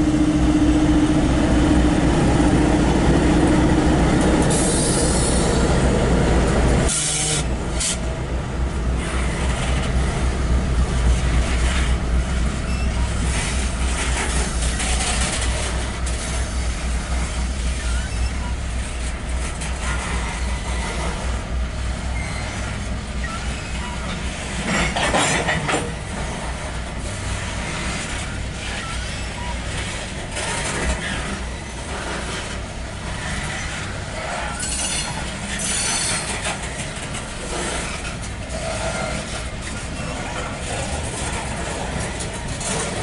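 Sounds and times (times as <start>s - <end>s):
train cars rolling on rails: 0.0s - 43.0s.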